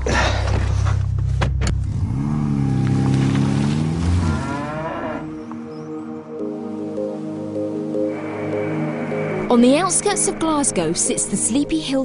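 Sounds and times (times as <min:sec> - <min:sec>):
low engine rumble: 0:00.0 - 0:04.6
music: 0:04.8 - 0:12.0.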